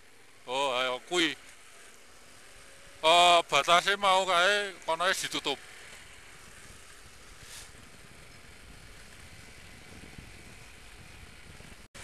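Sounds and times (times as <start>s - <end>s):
motorcycle engine rumble: 0.0s - 12.0s
wind hissing on microphone: 5.6s - 12.0s.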